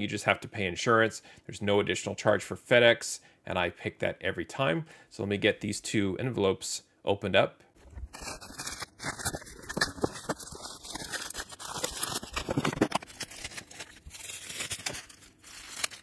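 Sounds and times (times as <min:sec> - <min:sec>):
bubble wrap and cardboard crinkling: 0:07.8 - 0:16.0
plastic envelopes tearing: 0:07.9 - 0:16.0.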